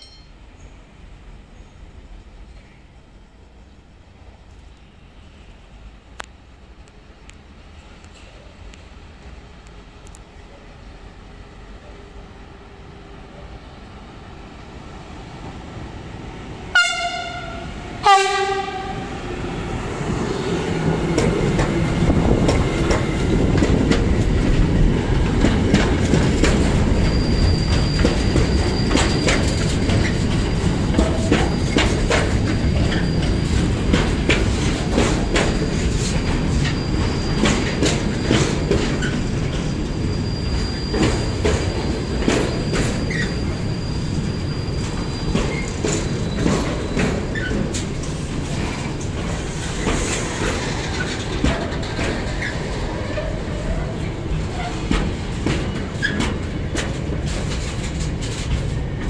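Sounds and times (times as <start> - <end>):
rumble of train wagons: 0.0 - 59.0
locomotive horn blasts: 16.7 - 19.2
wheels clicking over rail joints: 21.0 - 43.4, 44.8 - 59.0
thin high squeal: 38.2 - 47.5.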